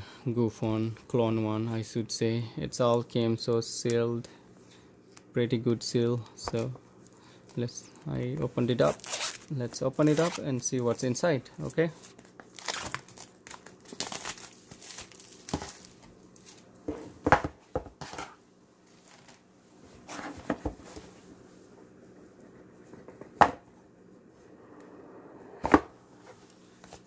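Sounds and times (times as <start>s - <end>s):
plastic wrap crinkling: 8.7s - 10.4s, 11.7s - 16.7s.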